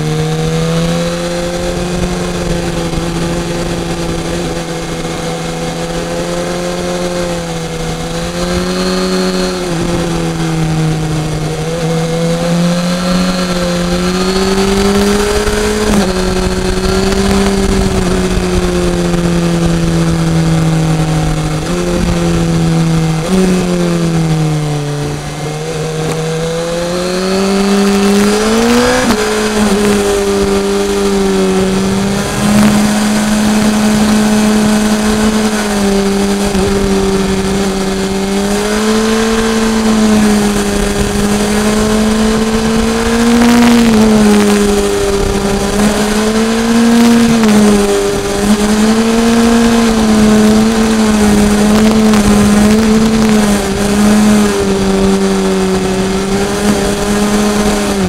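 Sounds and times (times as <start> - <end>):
motorcycle engine running: 0.0 - 58.0
wind rush: 0.0 - 58.0.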